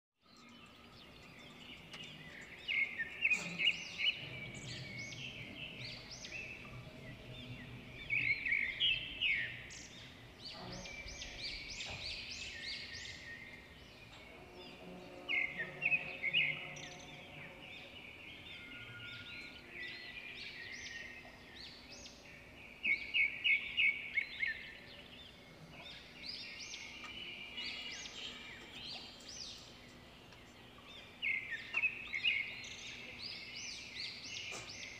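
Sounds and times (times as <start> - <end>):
birds chirping: 0.2 - 34.9
loud rapidly repeated bird notes: 0.6 - 25.4.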